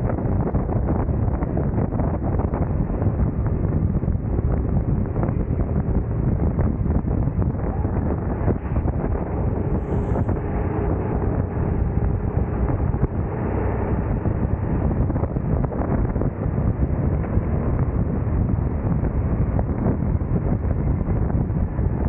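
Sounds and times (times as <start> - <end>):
wind buffeting microphone: 0.0 - 22.0
go-kart engine running: 2.7 - 19.5.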